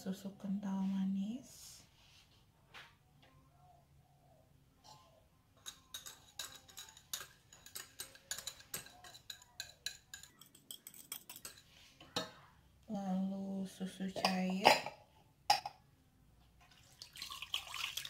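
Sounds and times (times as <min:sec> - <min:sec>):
whisk clinking against glass bowl: 0:05.6 - 0:11.7.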